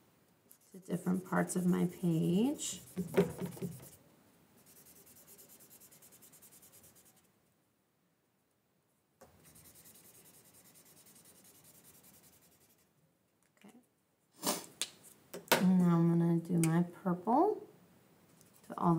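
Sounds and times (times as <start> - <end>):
marker scribbling on paper: 1.0 - 4.0, 4.6 - 7.3, 9.4 - 12.8.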